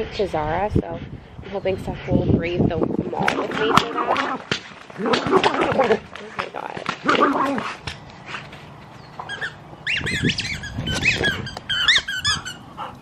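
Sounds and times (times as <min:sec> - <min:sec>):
squeaky toy squeaks: 0:09.2 - 0:12.8.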